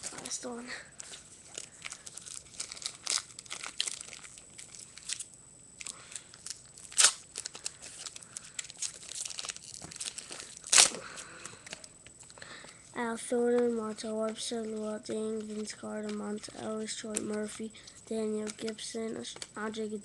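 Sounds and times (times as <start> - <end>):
wrapper tearing and crinkling: 1.4 - 11.9.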